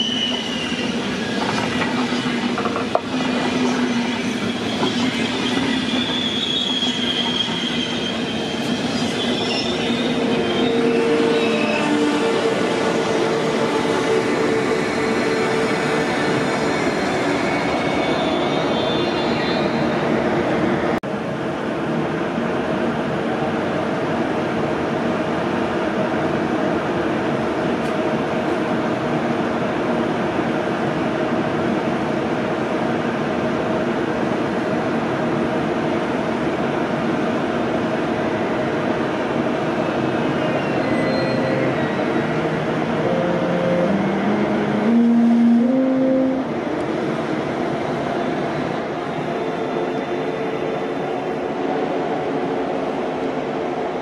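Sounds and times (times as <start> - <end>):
train power car humming: 35.3 - 54.0.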